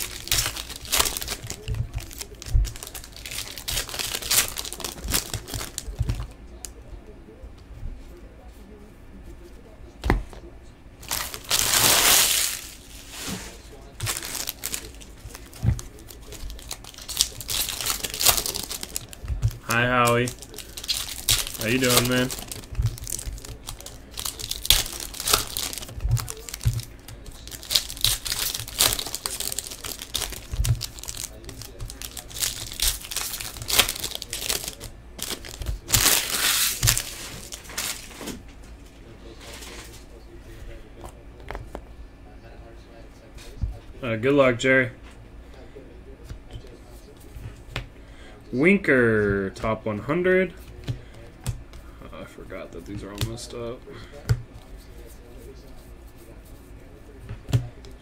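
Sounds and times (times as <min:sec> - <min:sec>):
foil wrapper tearing and crinkling: 0:00.0 - 0:06.3, 0:11.0 - 0:38.3.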